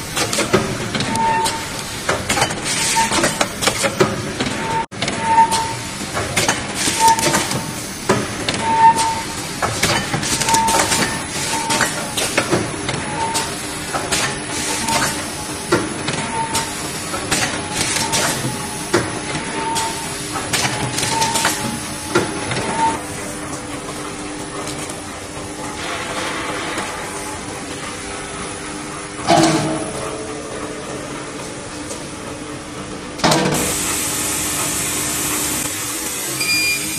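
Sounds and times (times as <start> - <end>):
machine clicks and knocks: 9.6 - 23.0, 29.2 - 30.1
steady machine hum: 10.4 - 36.9
short beeps: 36.4 - 36.9.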